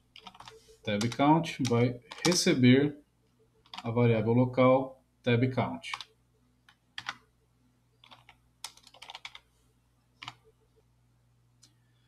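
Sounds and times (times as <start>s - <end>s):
computer keyboard typing: 0.1s - 2.6s, 3.6s - 3.9s, 5.9s - 6.1s, 6.7s - 7.2s, 8.0s - 9.4s, 10.2s - 10.4s.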